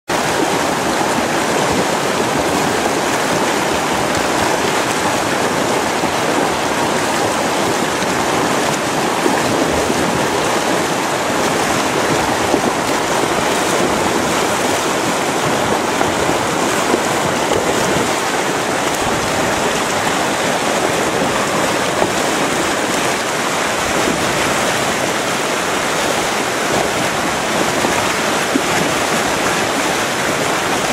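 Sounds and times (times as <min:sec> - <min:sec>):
river rushing over rocks: 0:00.1 - 0:30.9.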